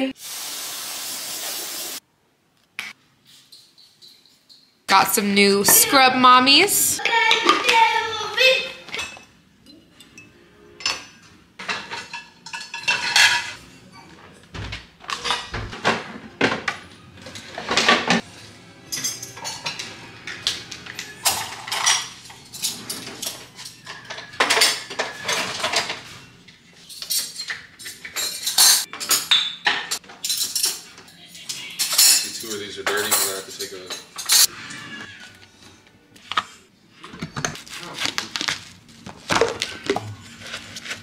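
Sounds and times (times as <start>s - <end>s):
pots and utensils clanking on racks: 8.8s - 35.4s.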